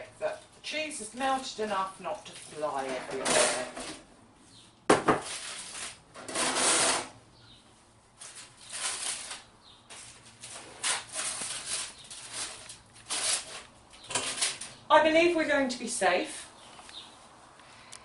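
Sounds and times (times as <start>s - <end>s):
aluminium foil crinkling: 5.2s - 6.0s, 8.2s - 14.8s.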